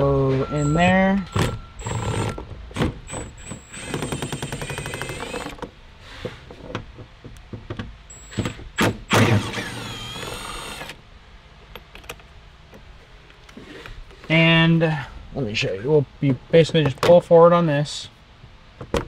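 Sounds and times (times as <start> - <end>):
cordless power tool whirring: 1.4 - 2.4, 3.1 - 5.6, 8.1 - 11.0.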